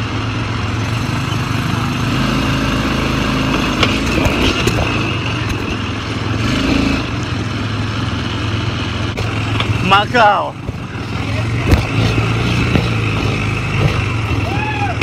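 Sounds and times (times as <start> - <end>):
quad bike engine running: 0.0 - 15.0
knocks and rattles: 10.6 - 15.0.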